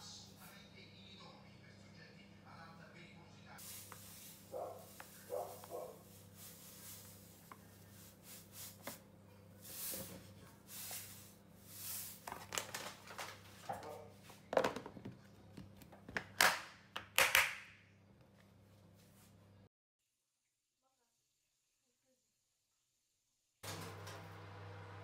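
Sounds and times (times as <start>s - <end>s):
salt pouring from a bag: 3.6s - 8.8s, 9.6s - 12.2s.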